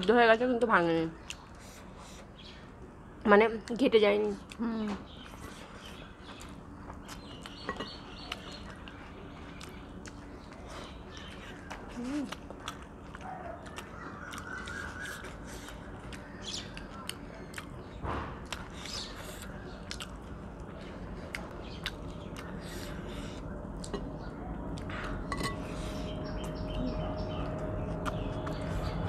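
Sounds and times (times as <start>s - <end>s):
people chewing and lip-smacking: 1.2s - 2.9s, 3.6s - 29.0s.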